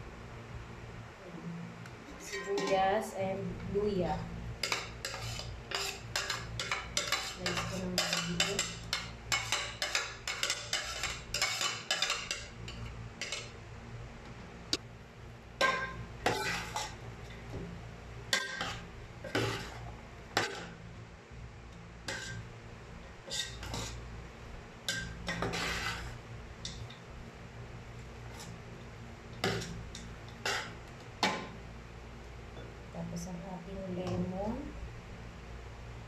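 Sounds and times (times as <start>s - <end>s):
metal spoon scraping metal bowl: 2.1s - 2.9s, 4.6s - 13.5s, 15.6s - 17.0s, 22.1s - 22.4s, 23.3s - 24.0s, 24.9s - 26.8s.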